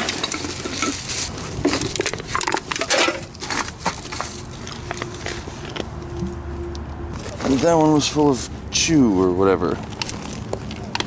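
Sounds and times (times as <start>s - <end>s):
bottles clicking and knocking: 0.0s - 4.2s
plastic bags rustling: 0.0s - 5.8s, 7.2s - 8.4s.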